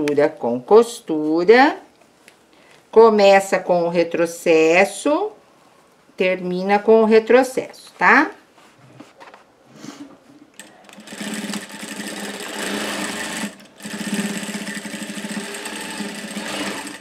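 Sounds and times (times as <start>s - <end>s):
sewing machine stitching: 10.6s - 17.0s.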